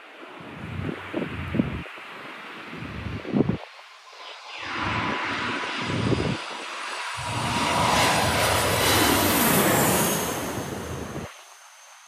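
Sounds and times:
jet airliner engine roar: 4.1 - 11.9
jet engine high whine: 4.1 - 12.0.

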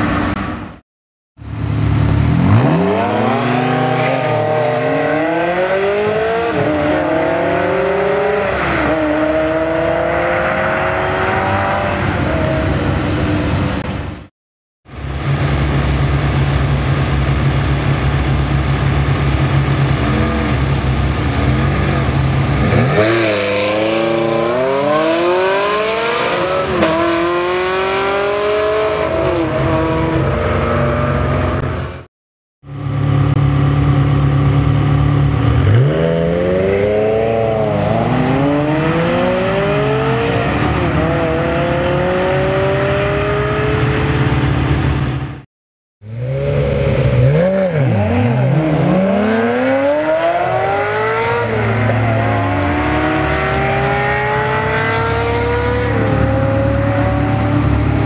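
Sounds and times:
car engine accelerating hard: 1.5 - 12.6, 46.1 - 58.0
car engine idling: 14.9 - 22.6.

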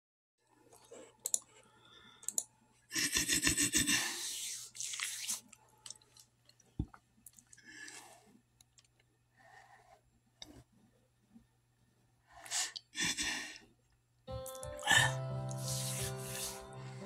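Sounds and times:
small clicks: 1.2 - 1.5, 2.2 - 2.5
rubbing against phone microphone: 3.2 - 5.5.

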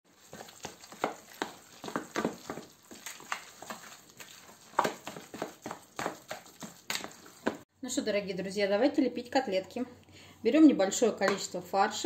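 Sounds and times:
spoon mashing fish mince in bowl: 0.1 - 7.6.

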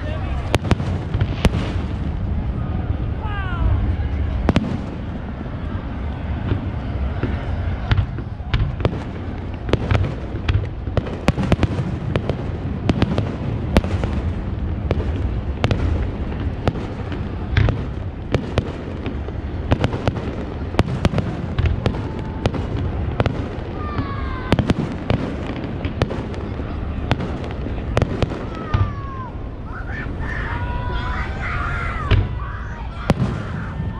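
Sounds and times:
fireworks bangs and pops: 0.0 - 2.5, 4.3 - 5.4, 6.4 - 29.4, 33.1 - 33.9
low rumble: 0.0 - 23.8.

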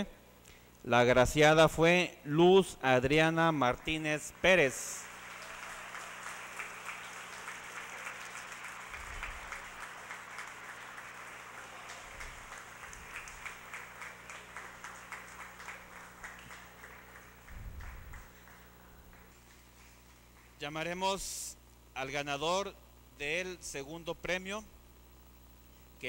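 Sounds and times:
audience applauding: 3.6 - 20.6.

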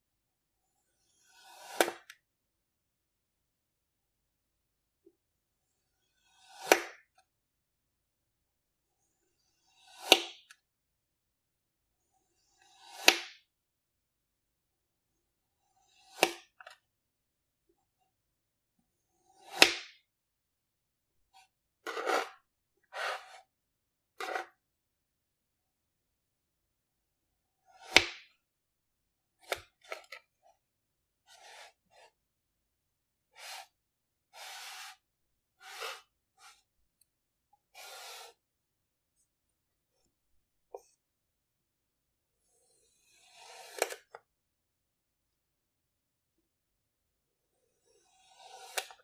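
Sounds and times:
blade cutting kinetic sand: 0.7 - 2.2, 5.8 - 7.1, 9.2 - 10.5, 12.1 - 13.5, 15.6 - 16.8, 19.1 - 20.1, 21.3 - 23.5, 27.6 - 28.4, 29.4 - 30.5, 31.2 - 32.2, 33.3 - 36.7, 37.6 - 38.4, 42.5 - 44.2, 47.6 - 49.0.

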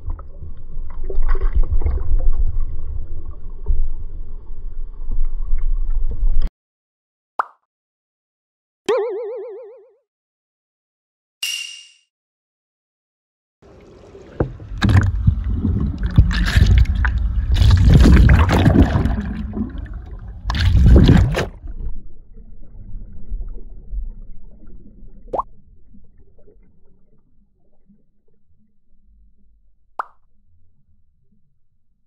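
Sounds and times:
rising underwater bloop: 8.9 - 10.0, 13.7 - 27.1
water churning and bubbling: 13.6 - 29.4.

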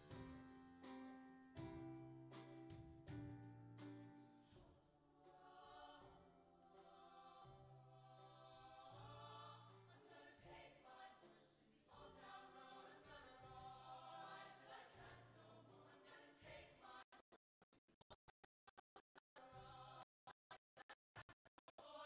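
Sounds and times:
choir singing: 5.2 - 17.2.

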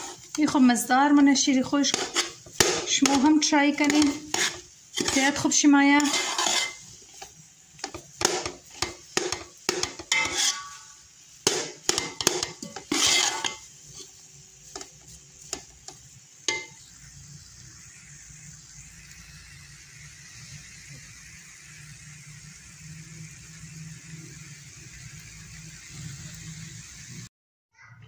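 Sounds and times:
metal spoon scraping a steel pot: 0.0 - 15.7, 16.5 - 16.8.

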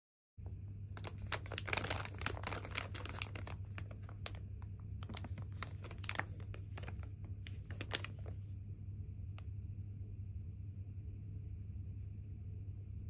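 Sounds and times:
low hum: 0.4 - 13.0
plastic bag crinkling: 1.0 - 8.5.

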